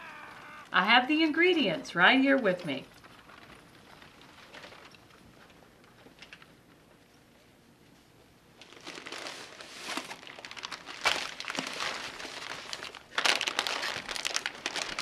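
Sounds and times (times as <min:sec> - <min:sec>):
paper bag crinkling: 0:02.3 - 0:06.6, 0:08.6 - 0:15.0.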